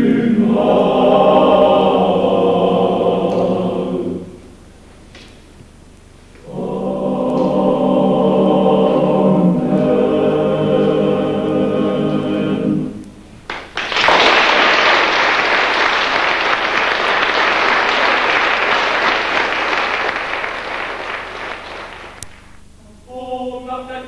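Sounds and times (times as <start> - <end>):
men's choir singing: 0.0 - 4.5, 6.4 - 13.0, 23.1 - 24.0
audience applauding: 13.5 - 22.6.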